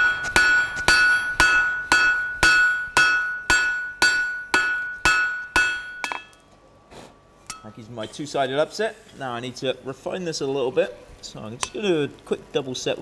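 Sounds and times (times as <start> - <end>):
hammer striking steel on anvil: 0.0 - 6.4, 7.4 - 7.8.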